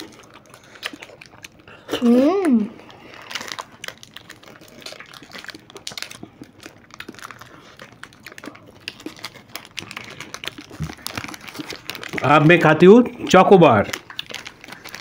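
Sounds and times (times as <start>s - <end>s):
plastic wrapper crinkling: 0.0s - 15.0s.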